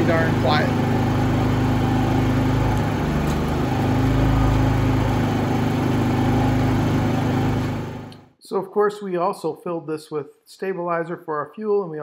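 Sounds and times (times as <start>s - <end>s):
generator engine humming: 0.0s - 8.2s.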